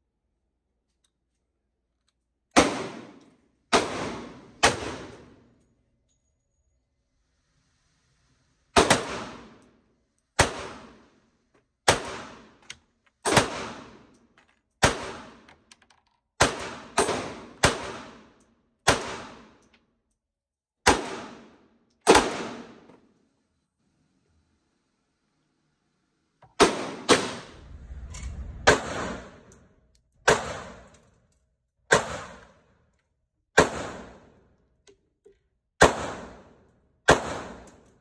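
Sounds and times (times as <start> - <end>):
pistol shots ringing indoors: 2.5 - 5.6, 10.4 - 11.2, 11.8 - 12.6, 13.2 - 15.5, 16.4 - 19.8, 20.8 - 23.2, 28.8 - 31.3, 31.9 - 34.6, 35.8 - 38.0.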